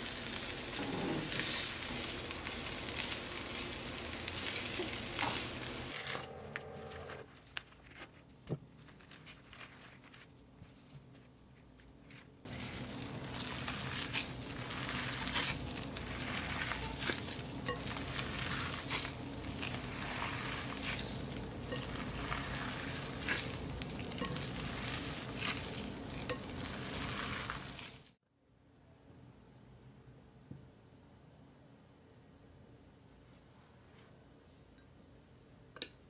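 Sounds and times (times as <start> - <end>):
low steady hum: 1.4 - 27.9
hand kneading raw meat: 7.3 - 28.1.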